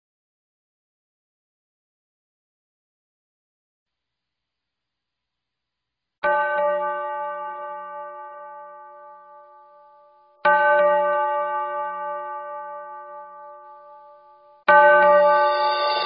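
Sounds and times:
bell-like chime: 13.1s - 16.0s.

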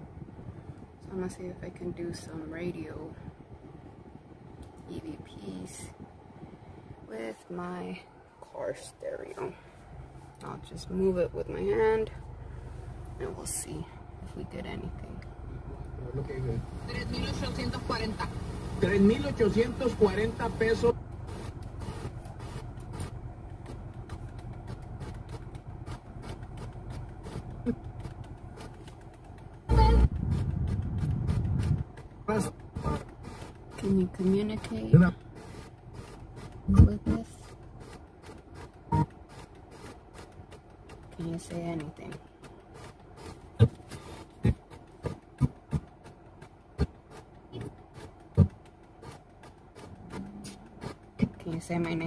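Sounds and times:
low hum: 0.0s - 39.6s
faint background noise: 0.0s - 52.0s
radio station snippets: 16.6s - 22.1s.

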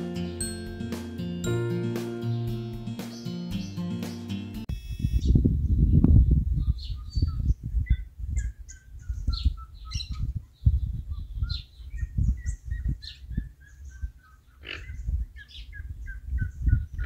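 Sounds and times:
wind rumbling on microphone: 4.7s - 17.0s
birds chirping and calling: 5.2s - 17.0s.

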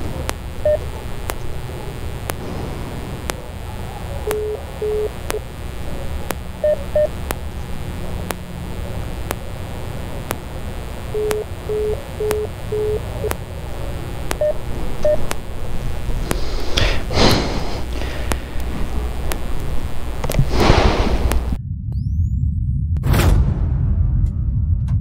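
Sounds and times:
clicks: 0.0s - 21.6s
loud rush of noise: 0.0s - 21.6s
steady low rumble: 0.0s - 25.0s
keypad beeps: 0.5s - 0.9s, 4.2s - 5.4s, 6.6s - 7.2s, 11.1s - 13.4s, 14.3s - 15.4s.

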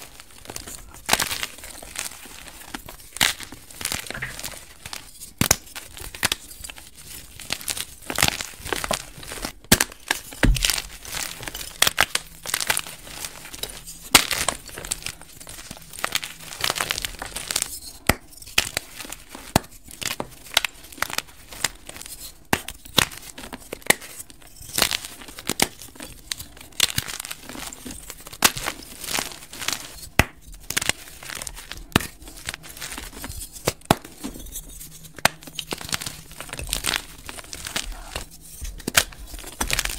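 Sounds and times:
chalk crunching and cracking by hand: 0.0s - 39.9s.

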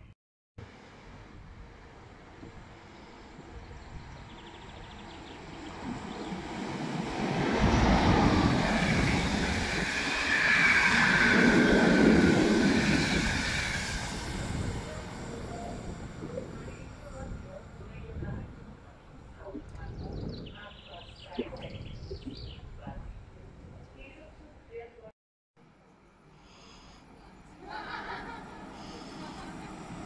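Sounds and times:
high hiss of passing train: 0.6s - 17.5s, 26.3s - 30.0s
train wheels rumbling on rails: 5.4s - 17.6s.

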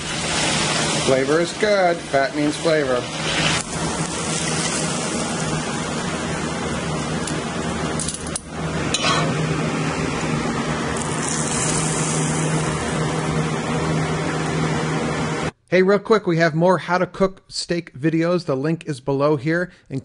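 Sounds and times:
range hood fan running: 0.0s - 15.6s
utensils clinking on plate: 9.0s - 9.3s.

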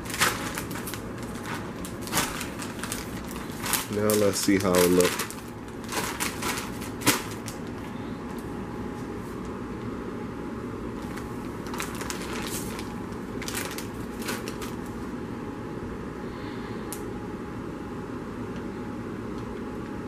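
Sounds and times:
foil chip bag crinkling: 0.0s - 8.0s, 11.0s - 15.0s
low background hum: 0.0s - 20.0s.

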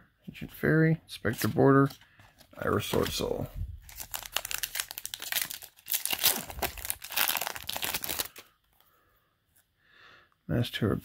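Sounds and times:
foil wrapper crinkling and tearing: 3.8s - 8.5s.

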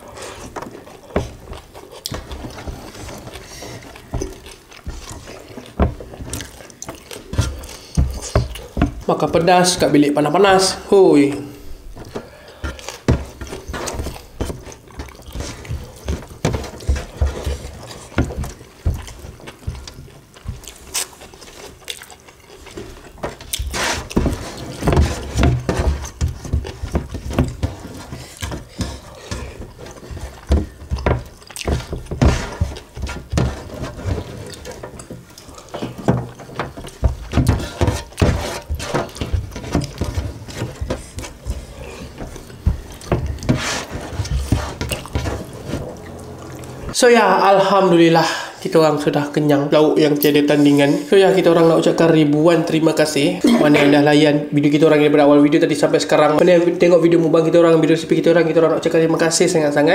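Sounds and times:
wet chewing: 0.0s - 9.1s, 11.6s - 47.0s
fingers scraping metal tray: 22.8s - 47.0s.

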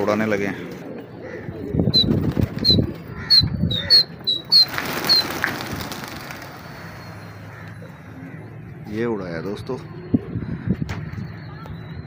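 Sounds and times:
pigeons cooing: 0.0s - 8.9s
pigeon wingbeats: 2.0s - 3.1s, 4.2s - 6.9s.

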